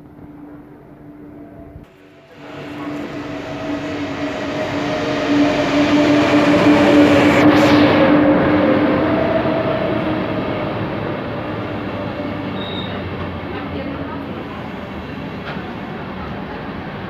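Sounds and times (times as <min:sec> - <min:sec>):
train wheels rumbling: 0:00.0 - 0:17.0
train whine: 0:00.0 - 0:17.0.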